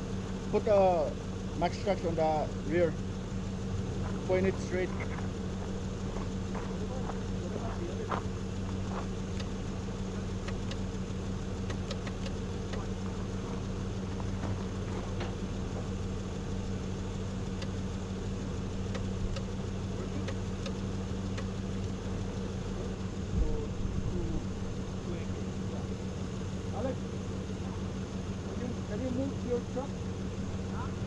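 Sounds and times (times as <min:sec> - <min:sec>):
truck engine idling: 0:00.0 - 0:31.0
light clicks: 0:11.6 - 0:12.9.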